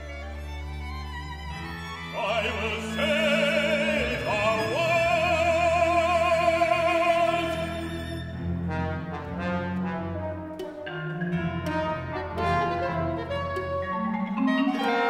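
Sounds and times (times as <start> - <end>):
orchestra with strings: 0.0 - 15.0
operatic solo singing: 2.1 - 8.1.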